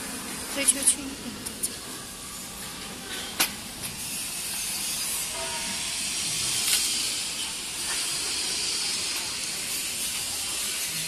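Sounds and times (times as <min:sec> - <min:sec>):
conveyor belt scraping: 0:00.0 - 0:11.0
steady hiss: 0:03.9 - 0:11.0.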